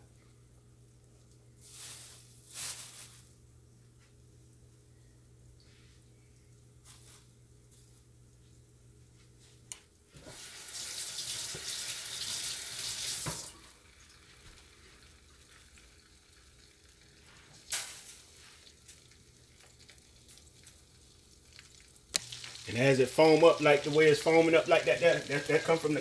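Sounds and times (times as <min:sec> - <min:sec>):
oil bubbling and hissing: 0:10.1 - 0:26.0.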